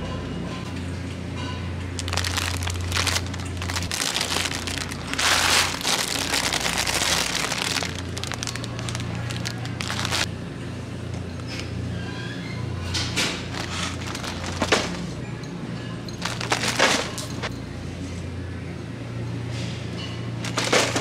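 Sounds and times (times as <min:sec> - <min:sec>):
plastic wrapper crinkling: 0:02.0 - 0:10.3, 0:13.5 - 0:15.0, 0:16.2 - 0:17.3.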